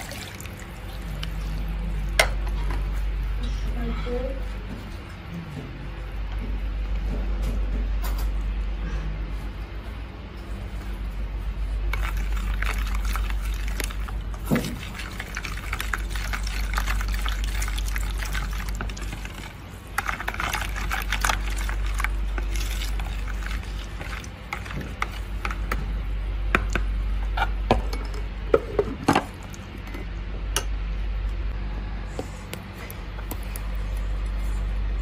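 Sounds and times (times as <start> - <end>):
liquid poured and mixed in bowl: 0.0 - 3.3, 11.6 - 26.1
steady low hum: 0.0 - 35.0.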